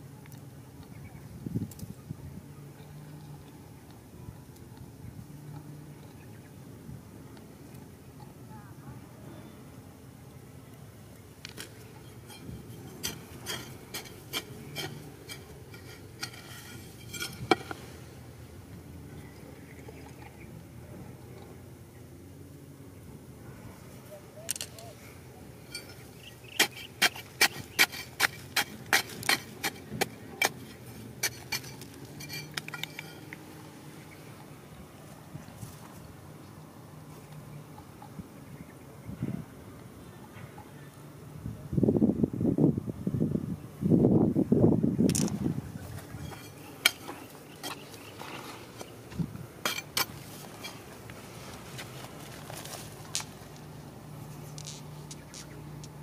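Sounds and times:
loose stones clicking: 0:11.4 - 0:17.8, 0:24.5 - 0:24.9, 0:25.7 - 0:33.4, 0:46.0 - 0:51.2, 0:54.4 - 0:56.0
metal spade striking stony soil: 0:11.5 - 0:17.9, 0:25.7 - 0:33.4, 0:46.0 - 0:51.0.

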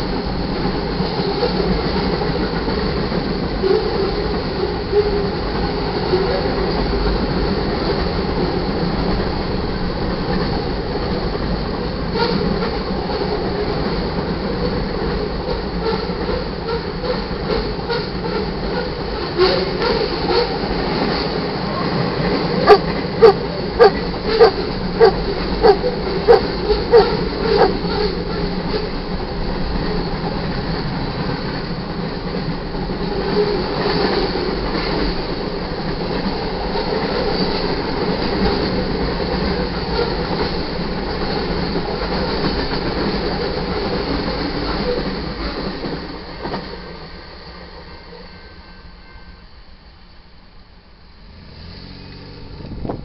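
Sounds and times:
freight train rolling past: 0:00.0 - 0:53.0
dog barking: 0:22.6 - 0:28.1.

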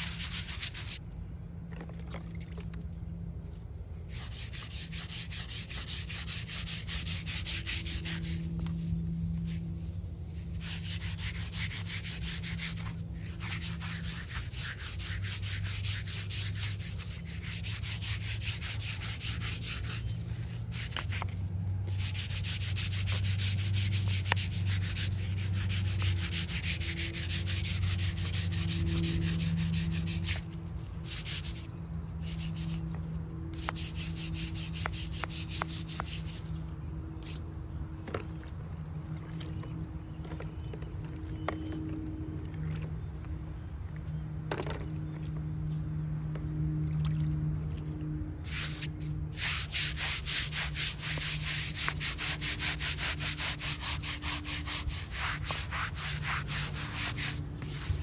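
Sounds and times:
brush scrubbing stone: 0:00.0 - 0:01.0, 0:04.0 - 0:36.6, 0:48.5 - 0:58.0.

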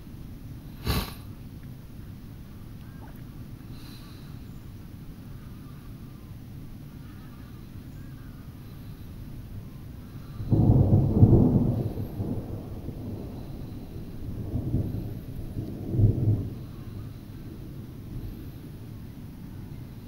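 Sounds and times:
thunder rumbling: 0:10.0 - 0:20.0.

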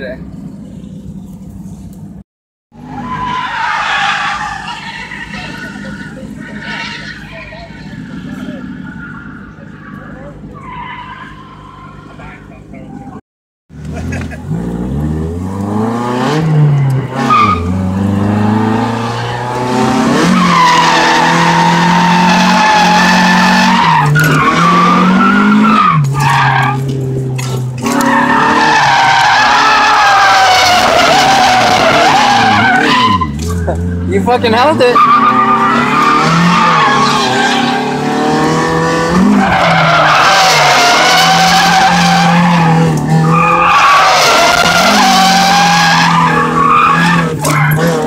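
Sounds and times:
tyres squealing: 0:02.9 - 0:12.5, 0:16.7 - 0:48.0
car engine at high revs: 0:12.0 - 0:48.0.

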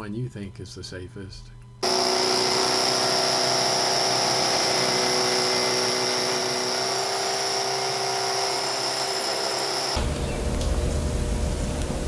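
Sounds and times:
hammer drill boring concrete: 0:01.8 - 0:10.2.

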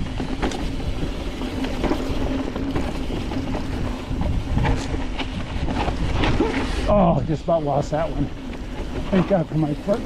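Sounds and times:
wind on microphone: 0:00.0 - 0:07.2
bike rattling and knocking: 0:00.0 - 0:10.0
tyres rumbling on dirt: 0:00.0 - 0:10.0.

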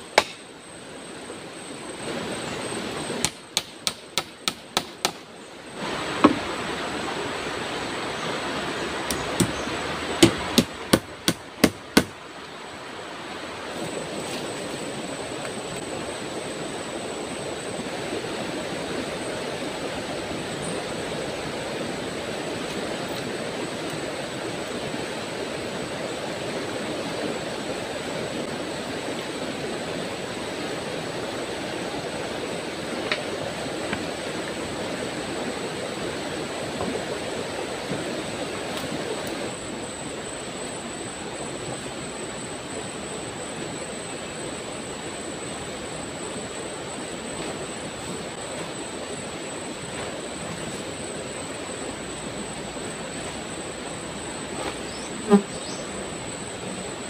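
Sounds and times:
wood being struck: 0:00.1 - 0:00.4, 0:09.1 - 0:09.6, 0:10.2 - 0:12.2
river water flowing: 0:05.7 - 0:54.5.

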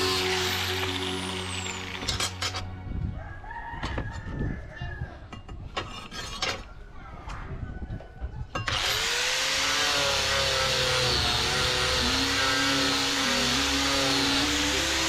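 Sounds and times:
angle grinder grinding steel: 0:00.0 - 0:02.7, 0:08.6 - 0:15.0.

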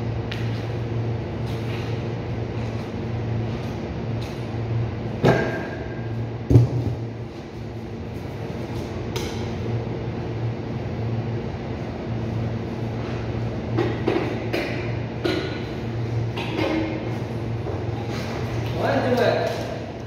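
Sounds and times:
refrigeration unit humming: 0:00.0 - 0:20.0.

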